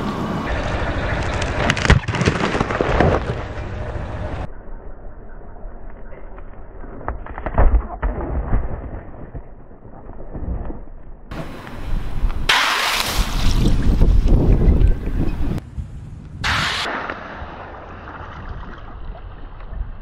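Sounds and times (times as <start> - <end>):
pumpkin cracking under car tyre: 1.3 - 3.6.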